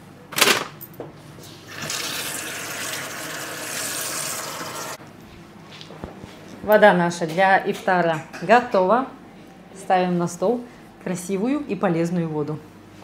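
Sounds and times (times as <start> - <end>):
water pouring into container: 1.7 - 5.0.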